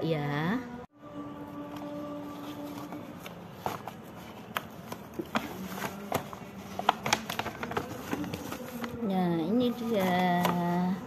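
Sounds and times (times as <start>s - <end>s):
faint steady hum: 0.0s - 11.0s
paper bag rustling and crinkling: 2.3s - 11.0s.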